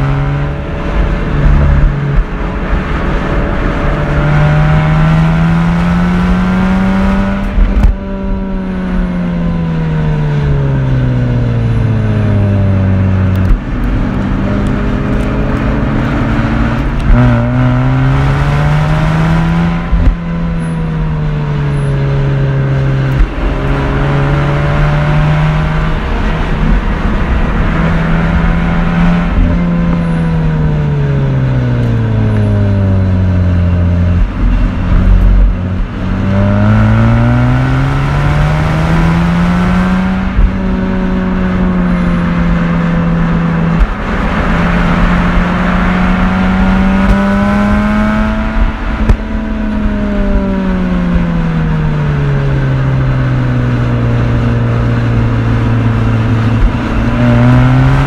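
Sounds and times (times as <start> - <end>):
rotary engine revving: 0.0 - 58.0.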